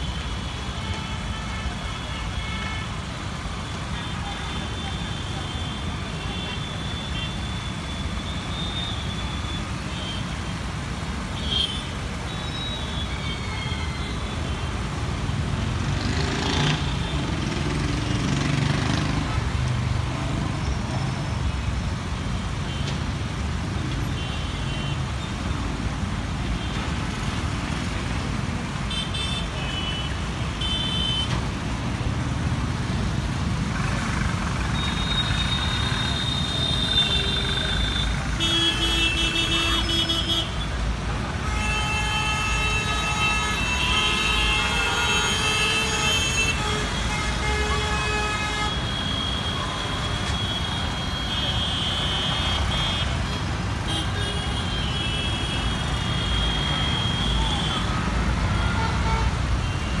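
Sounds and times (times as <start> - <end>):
road traffic engine rumble: 0.0 - 60.0
vehicle horns tooting: 34.7 - 40.7, 41.3 - 60.0.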